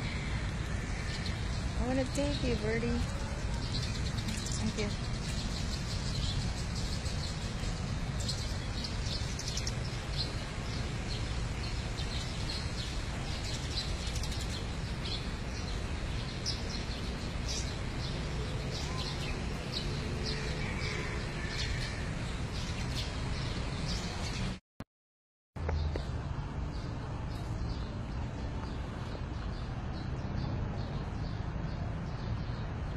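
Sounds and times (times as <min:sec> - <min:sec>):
steady low rumble: 0:00.0 - 0:20.3
small birds chirping: 0:00.0 - 0:24.6.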